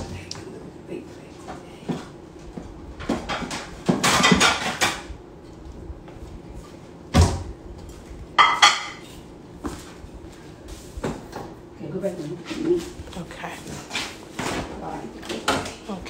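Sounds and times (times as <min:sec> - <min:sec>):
kitchenware rattling and clattering: 0:03.0 - 0:05.1.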